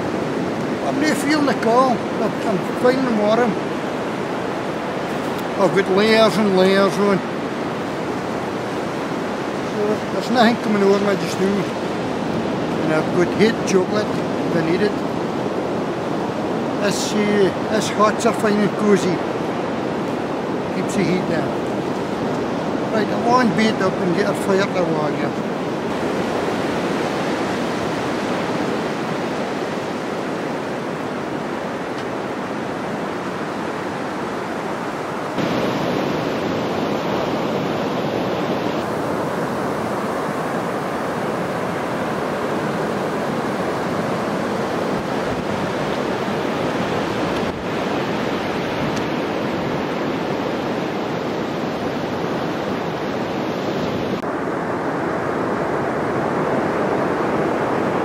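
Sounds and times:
sea surf breaking on beach: 0.0s - 58.0s.

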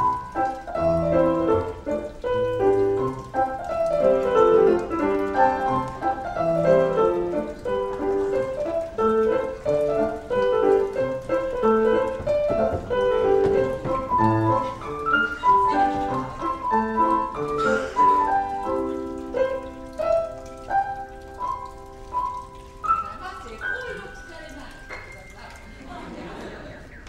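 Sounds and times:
lively piano piece: 0.0s - 27.0s.

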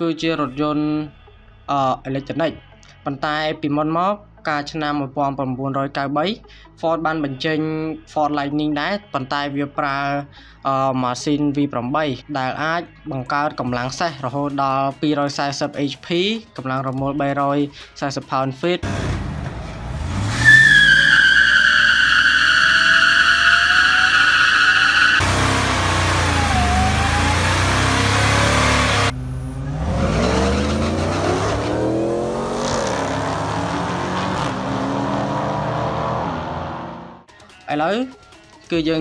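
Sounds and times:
cars accelerating hard: 18.8s - 37.3s
truck engine revving: 18.8s - 37.3s
tyres squealing: 20.1s - 31.8s.

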